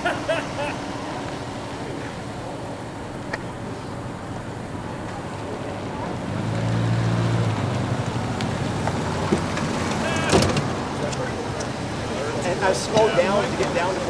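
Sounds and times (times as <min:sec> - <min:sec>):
vehicle engine passing: 0:00.0 - 0:14.0.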